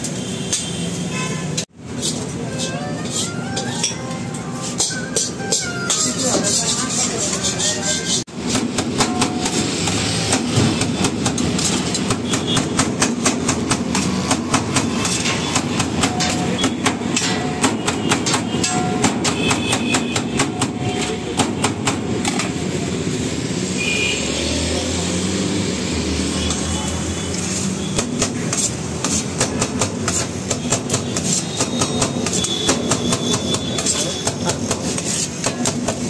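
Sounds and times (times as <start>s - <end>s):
steady background noise: 0.0s - 36.0s
knife chopping on steel tray: 28.0s - 36.0s.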